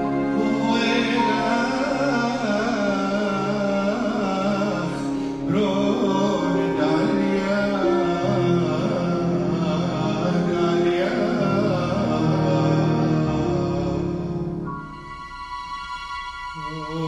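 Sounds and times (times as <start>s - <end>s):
person singing a hymn: 0.0s - 15.0s, 16.4s - 17.0s
sustained instrumental accompaniment: 0.0s - 17.0s
singer breathing: 5.0s - 5.5s.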